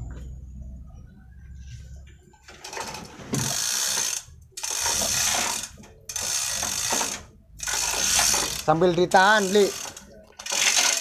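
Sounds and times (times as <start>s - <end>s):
chain hoist chain clattering: 2.5s - 11.0s.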